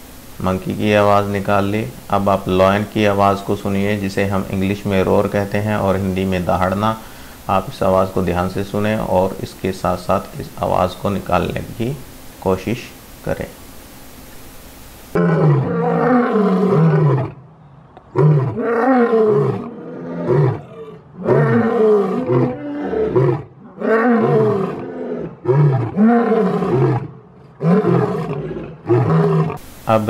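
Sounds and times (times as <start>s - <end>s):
lion roaring: 15.2s - 17.4s, 18.1s - 29.6s.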